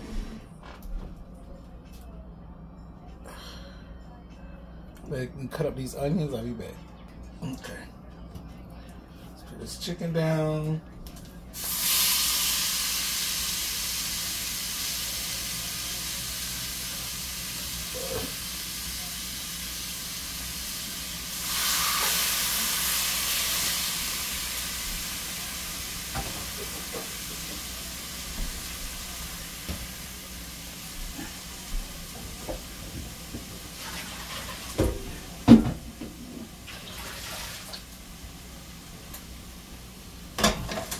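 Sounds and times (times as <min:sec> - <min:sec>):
chicken sizzling in hot oil: 0:11.6 - 0:31.6, 0:33.6 - 0:35.2, 0:36.5 - 0:38.0.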